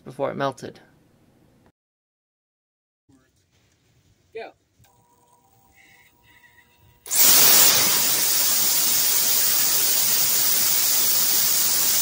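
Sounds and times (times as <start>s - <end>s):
compressed air hissing from nozzle: 6.3s - 12.0s.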